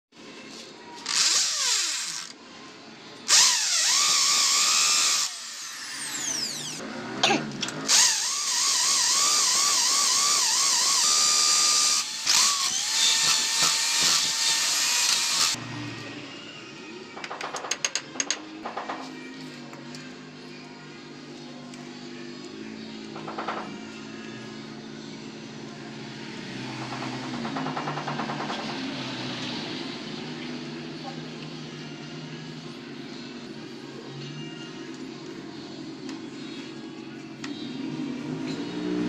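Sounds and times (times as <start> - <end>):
electric drill whining: 1.0 - 2.4, 3.3 - 6.8, 7.9 - 15.6.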